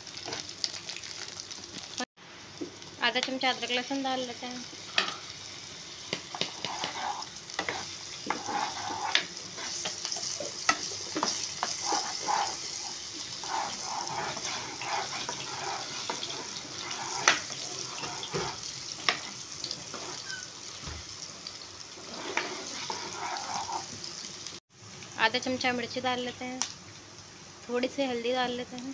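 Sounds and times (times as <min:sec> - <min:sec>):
vegetables sizzling in hot oil: 0:00.0 - 0:28.9
metal spoon stirring and scraping: 0:06.3 - 0:20.4, 0:22.0 - 0:24.0.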